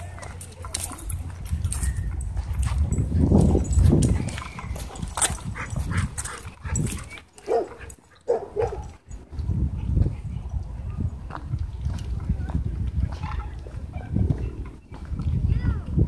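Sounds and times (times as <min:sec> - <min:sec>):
dogs barking: 0:03.4 - 0:09.0.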